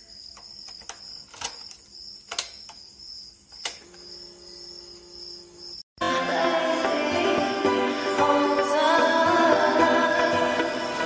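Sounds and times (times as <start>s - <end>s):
crickets chirring: 0.0s - 5.9s
loud background music: 6.0s - 11.0s.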